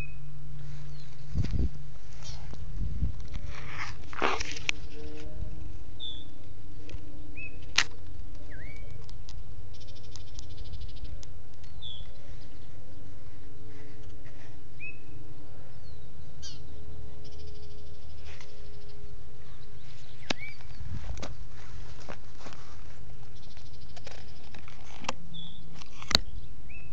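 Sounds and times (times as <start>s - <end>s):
bird chirps: 0.0s - 1.3s, 6.0s - 6.4s, 7.2s - 7.7s, 8.4s - 12.8s, 14.8s - 15.2s, 15.8s - 21.0s, 25.3s - 26.9s.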